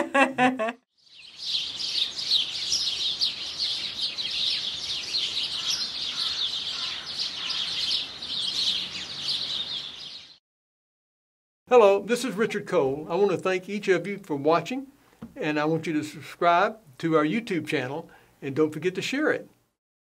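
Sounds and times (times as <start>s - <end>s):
songbirds chirping: 1.0s - 10.4s.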